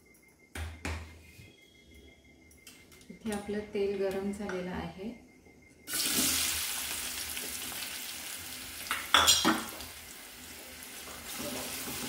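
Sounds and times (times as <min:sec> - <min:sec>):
onions sizzling in hot oil: 0:05.9 - 0:12.0.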